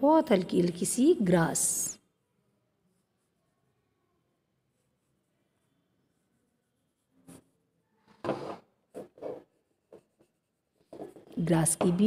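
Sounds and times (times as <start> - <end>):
pencil scratching on paper: 2.9 - 3.4, 4.7 - 7.6, 8.2 - 11.5.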